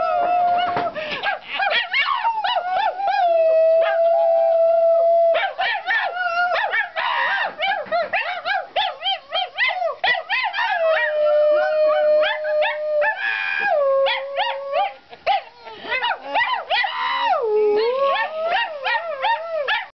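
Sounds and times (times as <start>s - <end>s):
dog howling: 0.0s - 0.9s, 1.6s - 8.1s, 9.0s - 19.9s
woman howling: 15.8s - 19.0s.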